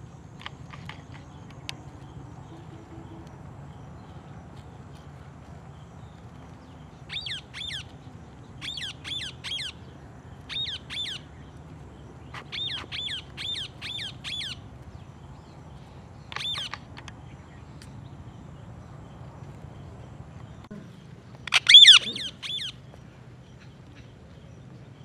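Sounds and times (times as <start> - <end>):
low background hum: 0.0 - 25.0
parakeet shrill screeches: 21.5 - 22.7.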